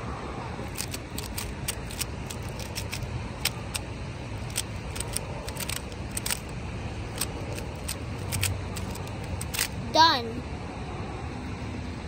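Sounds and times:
puzzle cube clicking: 0:00.6 - 0:06.5, 0:07.1 - 0:09.8.

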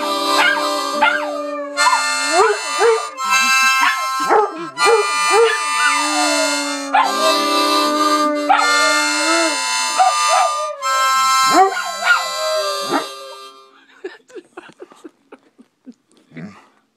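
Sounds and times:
harmonica playing chords: 0:00.0 - 0:13.9
dog howling: 0:00.3 - 0:13.6.

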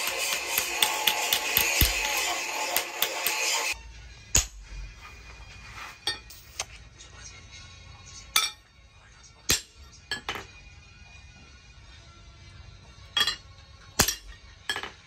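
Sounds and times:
hammer striking metal: 0:00.0 - 0:04.6, 0:08.4 - 0:08.6, 0:09.5 - 0:10.5, 0:13.2 - 0:15.0
faint background music: 0:00.0 - 0:15.0.

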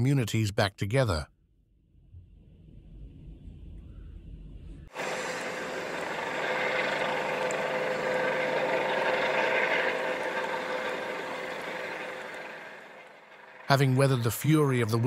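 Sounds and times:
faint low rumble: 0:01.3 - 0:04.9
helicopter hovering: 0:04.8 - 0:15.0.

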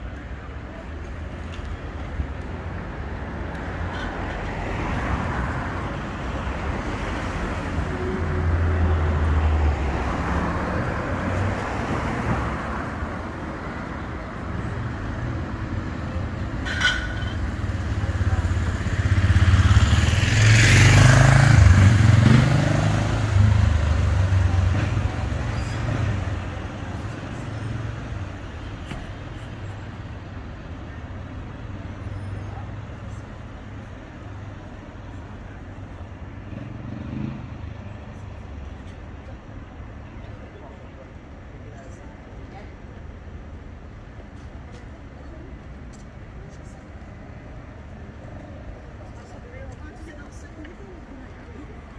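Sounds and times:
tram approaching: 0:00.0 - 0:32.0
street traffic rumble: 0:00.0 - 0:51.9.

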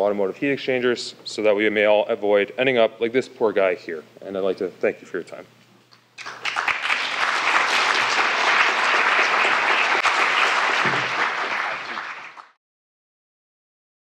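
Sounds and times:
audience applauding: 0:06.2 - 0:12.6.

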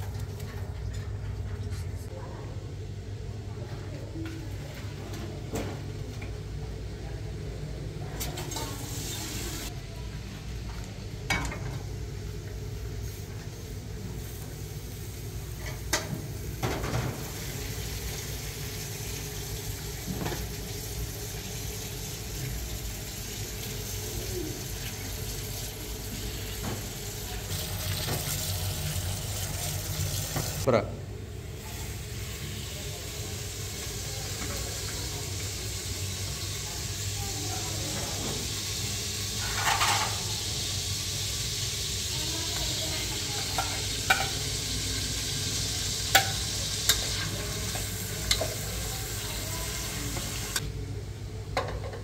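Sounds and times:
tap water running into colander: 0:16.6 - 0:30.7, 0:33.2 - 0:50.7.

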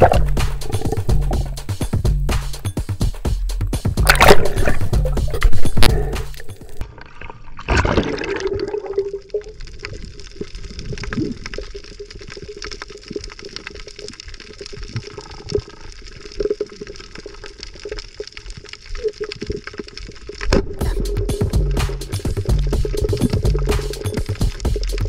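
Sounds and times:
crackling clicks underwater: 0:00.0 - 0:02.5, 0:03.6 - 0:25.0
water rushing: 0:04.0 - 0:09.6
muffled underwater noise: 0:04.1 - 0:06.8.

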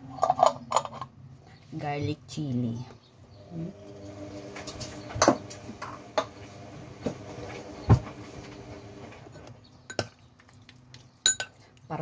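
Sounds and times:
glass jar and tableware clinking: 0:09.9 - 0:10.2, 0:11.2 - 0:11.6.

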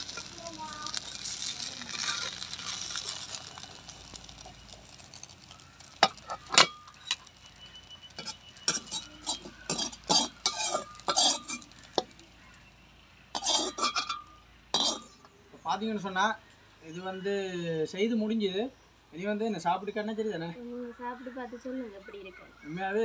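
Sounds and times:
metal spatula scraping frying pan: 0:00.0 - 0:12.2, 0:13.4 - 0:15.2.

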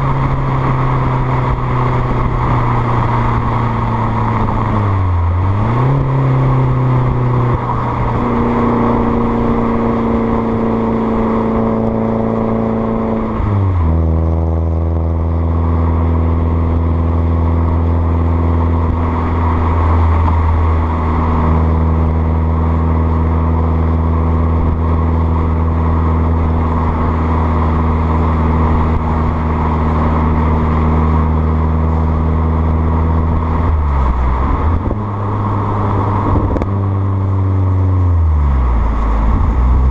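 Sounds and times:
car exhaust engine drone: 0:00.0 - 0:39.9.

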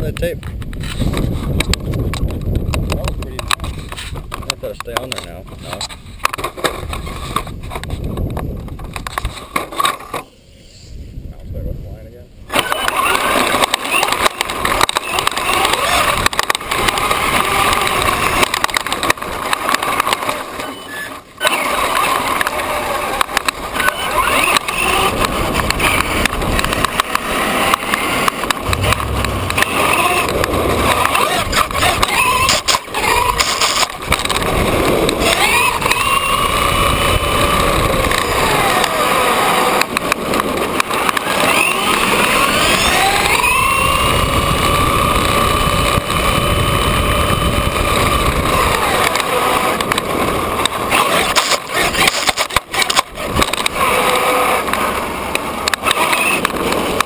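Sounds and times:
tyres and chassis rattling: 0:12.4 - 0:57.0
electric motor whine: 0:12.6 - 0:57.0.

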